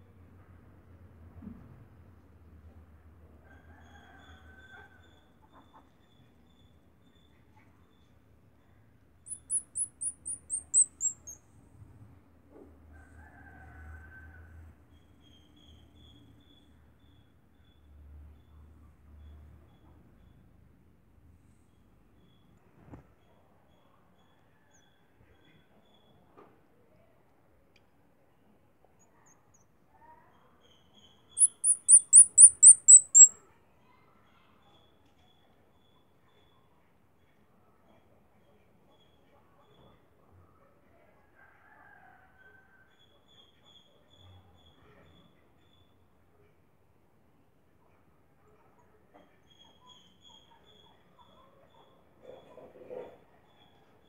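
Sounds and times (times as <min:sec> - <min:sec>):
high-pitched falling chirps: 0:09.3 - 0:11.4, 0:31.4 - 0:33.3
squirrel pup squeaking: 0:09.3 - 0:11.4, 0:31.4 - 0:33.3.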